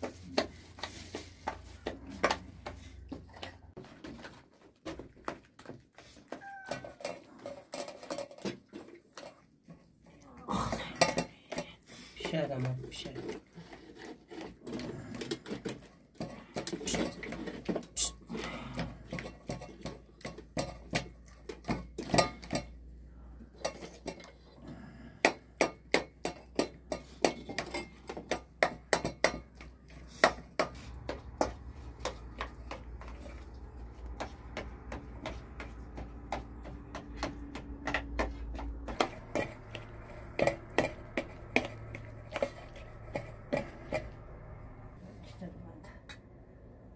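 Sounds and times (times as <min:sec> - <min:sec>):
dishes and utensils clinking: 0:10.6 - 0:22.9, 0:25.2 - 0:33.8, 0:38.5 - 0:44.6.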